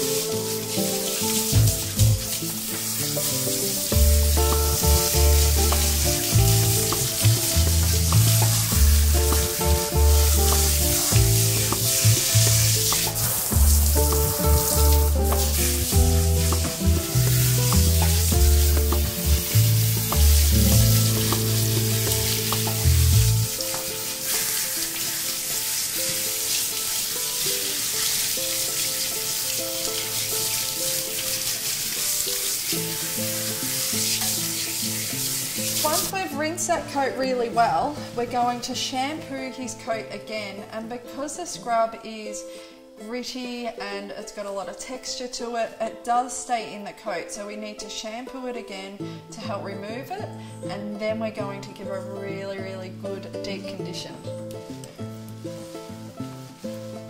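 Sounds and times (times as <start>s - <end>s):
water spraying from shower head: 0.0s - 36.4s, 55.1s - 57.0s
background music: 0.0s - 57.0s.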